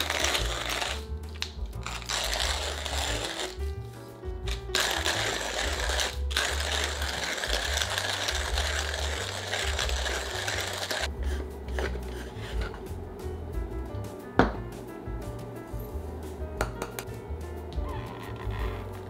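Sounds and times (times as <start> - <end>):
manual coffee grinder grinding: 0.0 - 3.8, 4.4 - 12.7
background music: 0.0 - 19.0.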